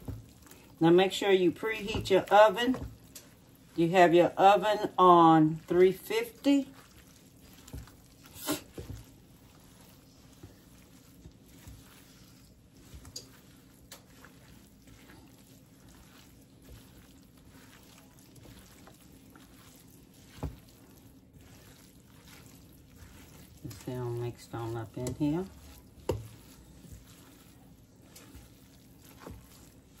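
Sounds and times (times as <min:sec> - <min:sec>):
spoon squishing moist food: 0:00.0 - 0:00.8, 0:01.8 - 0:30.0.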